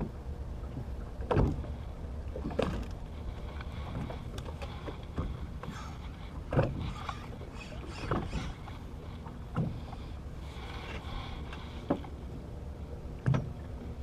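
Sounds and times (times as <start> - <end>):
boat rumble and hiss: 0.0 - 14.0.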